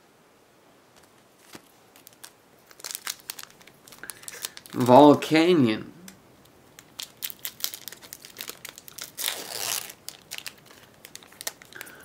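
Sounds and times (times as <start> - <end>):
foil pack crinkling and tearing: 1.4 - 5.2, 6.7 - 12.0.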